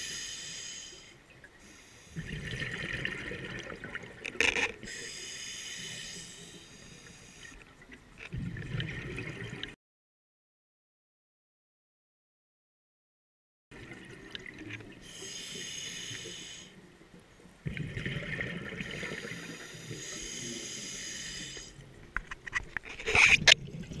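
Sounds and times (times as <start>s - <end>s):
regulator hissing inhale: 0.0s - 2.2s, 4.8s - 7.7s, 15.0s - 16.8s, 19.0s - 21.8s.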